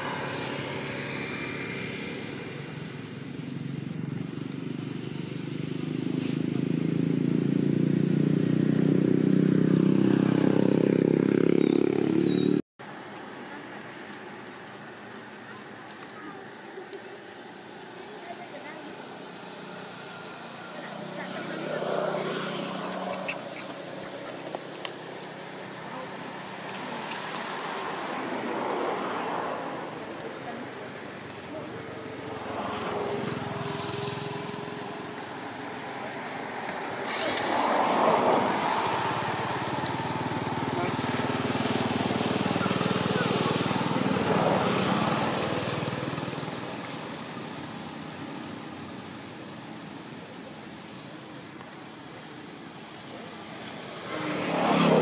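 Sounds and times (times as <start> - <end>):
footsteps on dry leaves: 5.2 - 6.7
small engine running: 37.0 - 47.2.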